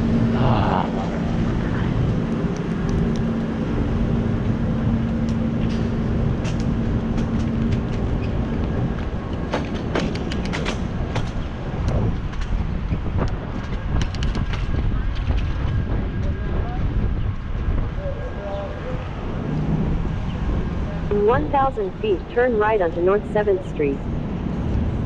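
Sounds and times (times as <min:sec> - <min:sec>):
steady hum: 0:00.0 - 0:25.0
tyre and wind rumble: 0:00.0 - 0:25.0
bicycle clicks and rattles: 0:05.2 - 0:16.4.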